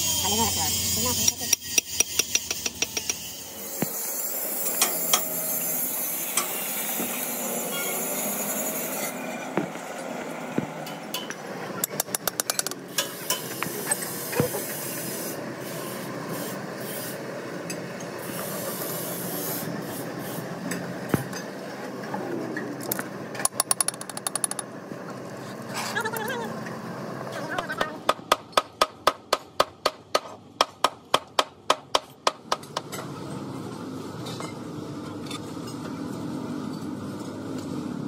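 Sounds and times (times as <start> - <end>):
metal clinks and knocks: 22.9 - 24.7
socket ratchet clicking: 23.4 - 24.6.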